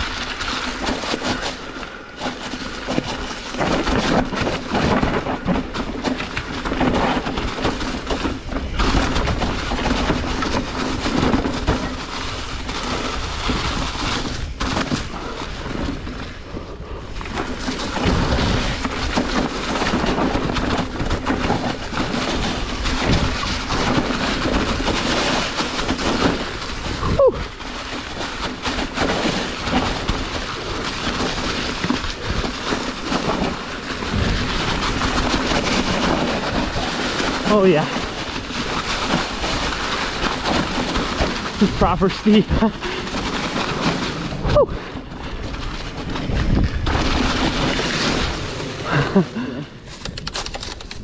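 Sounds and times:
bike tyres rumbling over dirt: 0:00.0 - 0:51.0
wind rushing on microphone: 0:29.4 - 0:51.0.

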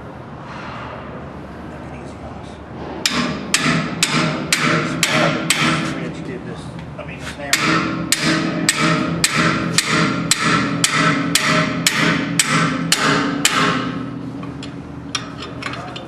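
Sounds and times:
hammer striking metal wrench: 0:03.0 - 0:06.0, 0:07.5 - 0:16.0.

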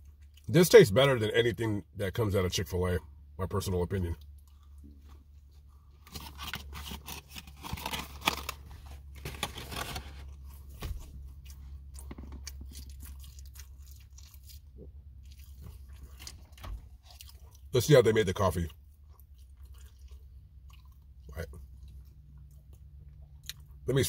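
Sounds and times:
person chewing food: 0:04.2 - 0:17.7, 0:18.8 - 0:23.8.

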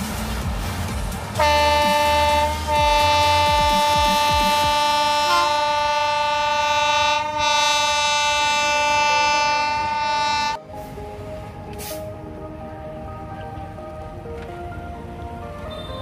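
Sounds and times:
locomotive air horn blast: 0:01.4 - 0:10.6.

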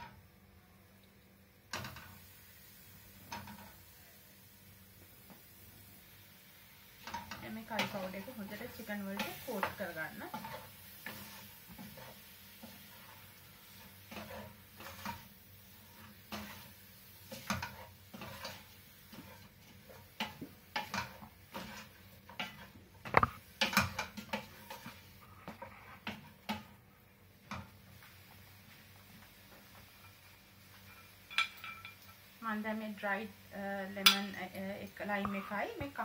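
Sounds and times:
wooden spoon scraping pot: 0:07.0 - 0:26.7.

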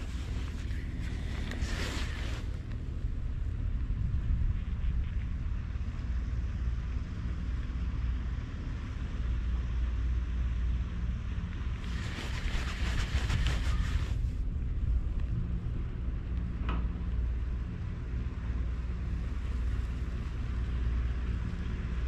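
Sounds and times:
wind buffeting microphone: 0:00.0 - 0:07.0, 0:11.6 - 0:16.6
rapid rough rasping: 0:11.8 - 0:14.2.

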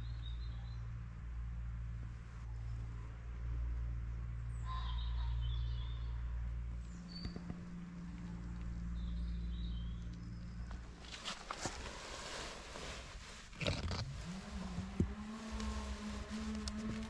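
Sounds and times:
low mechanical hum: 0:00.0 - 0:17.0
small birds chirping: 0:04.2 - 0:11.8.

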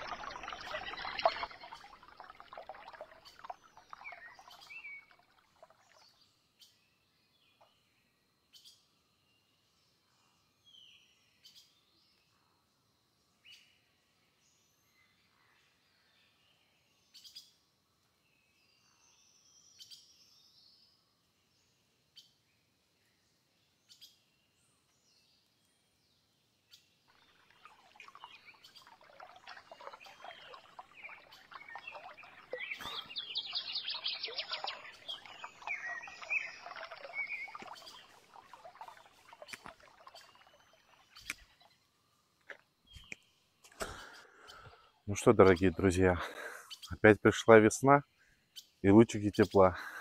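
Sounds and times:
water pouring and splashing: 0:00.0 - 0:06.2, 0:27.1 - 0:41.8
bird chirps: 0:00.0 - 0:06.8, 0:26.7 - 0:41.8.

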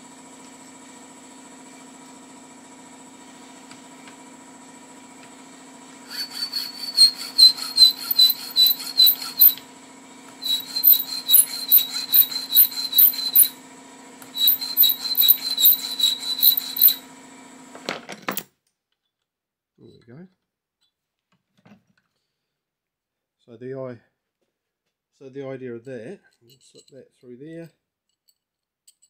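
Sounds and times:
air compressor humming: 0:00.0 - 0:17.8
file squealing on metal: 0:06.0 - 0:09.6, 0:10.4 - 0:13.6, 0:14.3 - 0:17.1.

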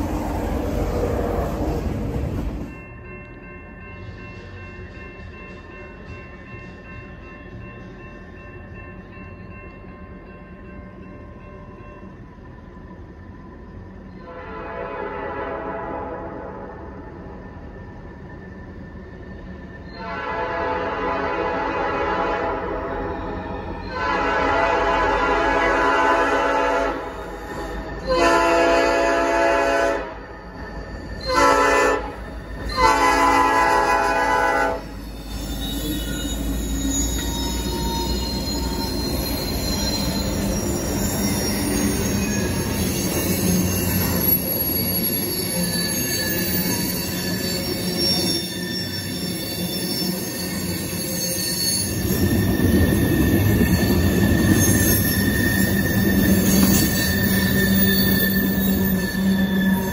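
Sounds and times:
train cars rolling: 0:00.0 - 0:09.9, 0:16.8 - 0:59.9
train air horn blasts: 0:14.3 - 0:16.7, 0:20.0 - 0:23.1, 0:23.9 - 0:27.2, 0:28.0 - 0:30.2, 0:31.3 - 0:35.0
locomotive engines: 0:22.6 - 0:59.9
wheels squealing: 0:34.8 - 0:59.9.

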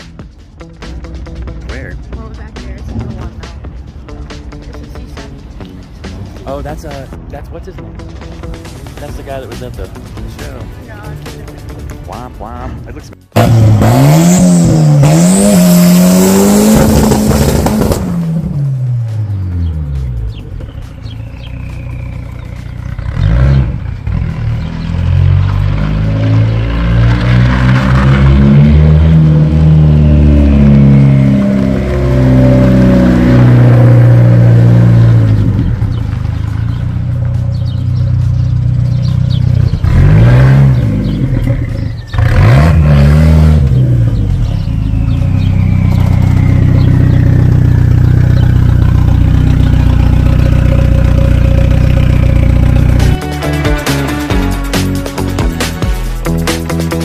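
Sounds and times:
car engine accelerating and revving: 0:13.3 - 0:54.3.

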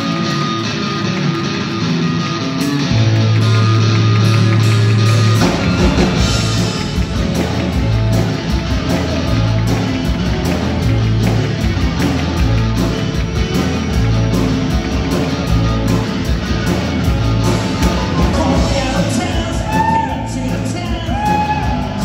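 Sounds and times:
drums: 0:00.0 - 0:22.0
electric guitars: 0:00.0 - 0:22.0.

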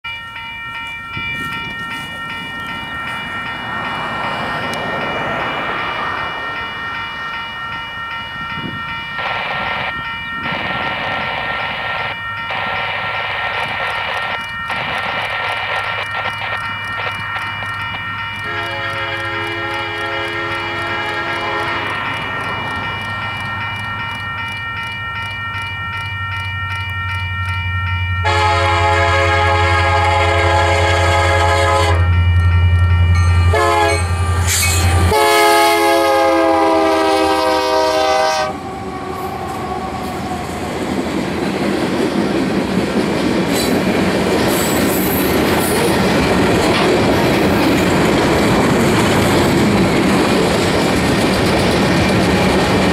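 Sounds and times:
train wheels rumbling and clattering: 0:00.8 - 0:27.6, 0:29.5 - 0:52.9
train horn blasts: 0:18.4 - 0:22.0, 0:28.2 - 0:32.4, 0:33.3 - 0:40.2.

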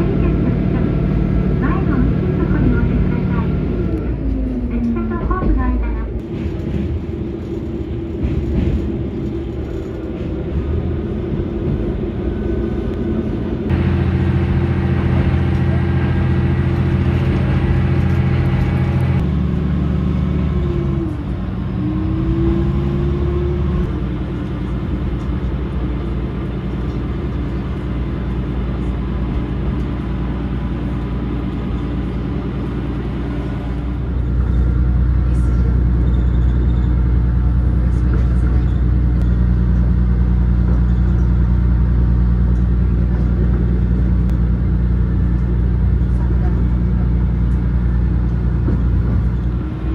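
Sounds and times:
diesel railcar engine running: 0:00.0 - 0:49.9
train in motion hum: 0:00.0 - 0:49.9.

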